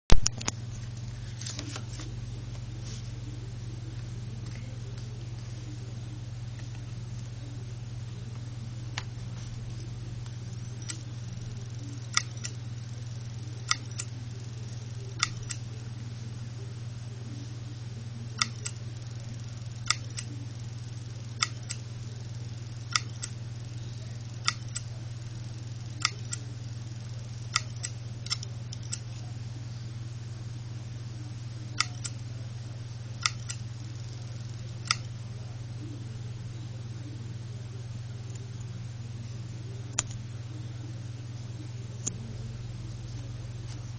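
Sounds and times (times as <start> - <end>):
hard drive platter humming: 0.1 - 43.9
hard drive head clicks: 13.3 - 15.7, 18.4 - 21.9, 22.6 - 24.9, 27.4 - 29.1, 31.8 - 32.2, 33.2 - 33.6, 34.8 - 35.1.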